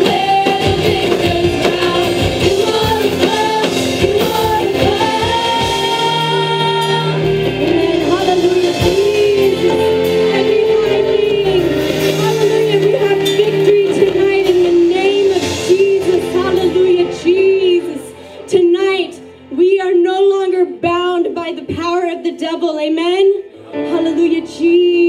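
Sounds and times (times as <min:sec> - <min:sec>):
women singing worship song: 0:00.0 - 0:17.8
live band accompaniment: 0:00.0 - 0:25.0.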